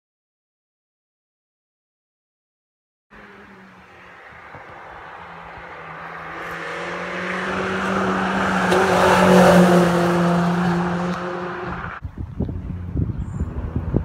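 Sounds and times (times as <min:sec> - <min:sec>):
car engine at high revs passing: 0:03.1 - 0:12.0, 0:12.6 - 0:14.0.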